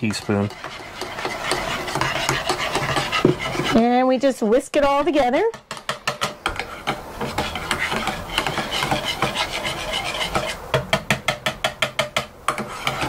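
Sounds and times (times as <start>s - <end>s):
whisk beating in bowl: 0.0s - 4.0s, 4.9s - 13.0s.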